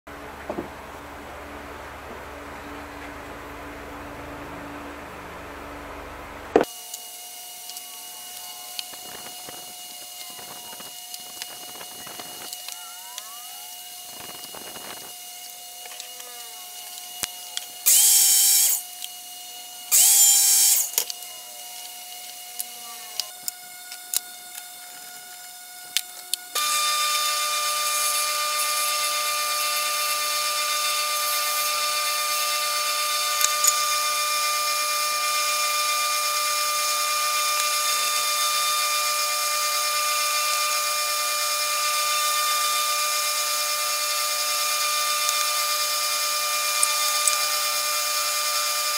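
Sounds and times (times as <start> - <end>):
drill bit boring acrylic: 6.6 - 48.9
wood lathe running: 6.6 - 48.9
clicks and rattles of parts: 20.6 - 27.3, 33.2 - 34.0, 46.7 - 47.6.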